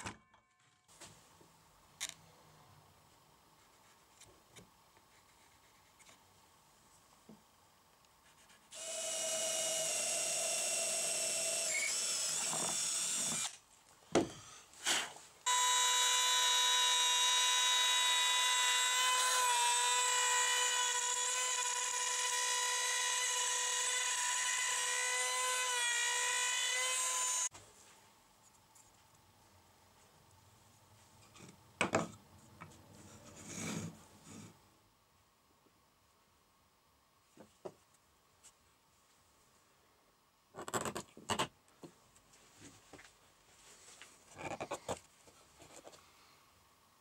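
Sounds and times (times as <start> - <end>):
router whining cutting plywood: 8.8 - 13.5, 15.5 - 27.5.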